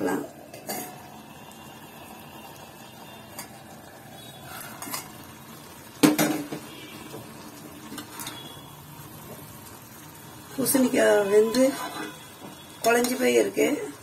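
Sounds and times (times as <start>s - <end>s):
ladle tapping and scraping pan: 4.5s - 5.1s.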